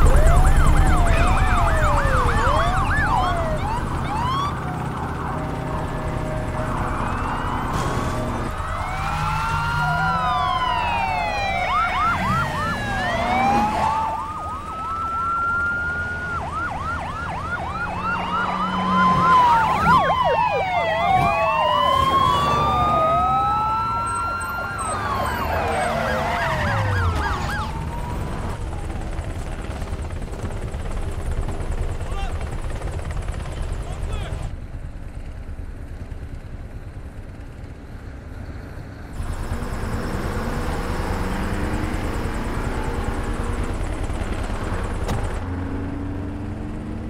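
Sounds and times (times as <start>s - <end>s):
siren yelp: 0.0s - 29.3s
police sirens wailing: 0.0s - 32.5s, 39.2s - 47.0s.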